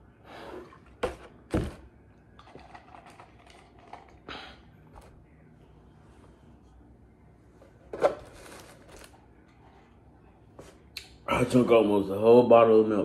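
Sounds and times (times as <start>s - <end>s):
plastic jug thumps: 1.0s - 1.9s.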